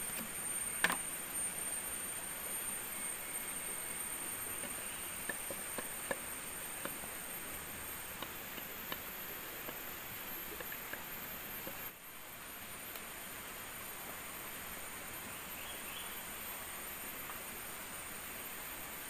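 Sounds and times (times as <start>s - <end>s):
small sharp clicks and crackles: 0.0s - 1.1s, 4.5s - 12.0s
insects droning high: 0.0s - 19.0s.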